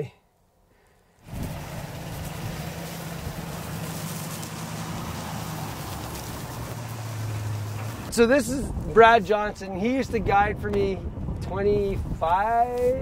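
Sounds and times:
pickup truck engine humming: 1.2 - 10.1.

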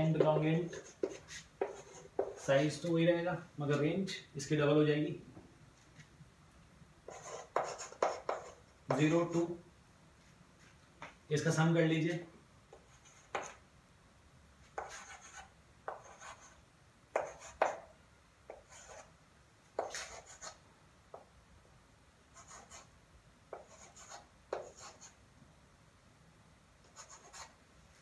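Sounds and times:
chalk writing on blackboard: 0.2 - 2.6, 7.1 - 9.5, 12.7 - 13.6, 14.7 - 17.9, 18.5 - 19.1, 19.8 - 20.6, 22.4 - 22.9, 23.5 - 25.2, 26.9 - 27.6.

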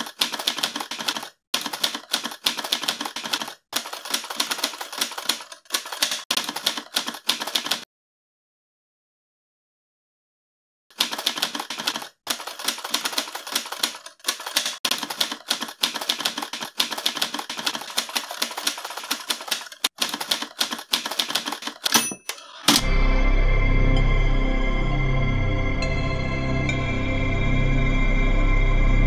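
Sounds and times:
typewriter keys striking: 0.0 - 7.8, 10.9 - 22.8
typewriter bell ding: 21.8 - 22.9
music with deep low tone: 22.8 - 29.0.

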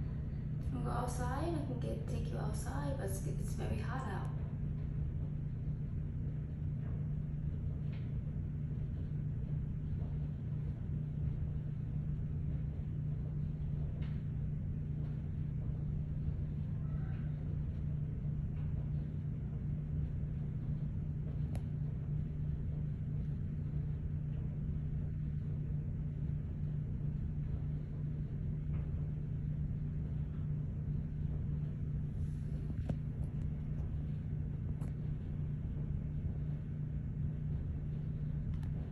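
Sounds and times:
low background hum: 0.0 - 38.9.

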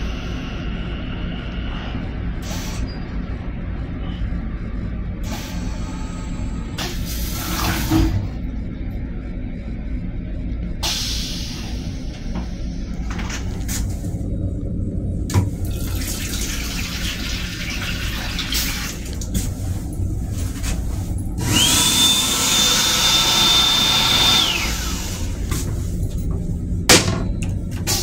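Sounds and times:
train low rumble: 0.0 - 28.0
water running from faucet: 15.7 - 19.2.

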